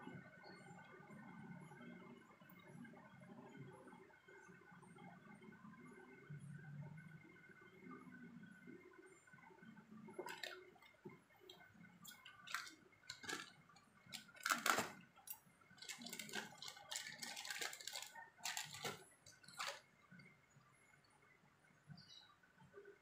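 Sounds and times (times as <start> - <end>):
plastic bags crinkling: 10.2 - 10.6, 12.1 - 15.0, 15.8 - 19.8.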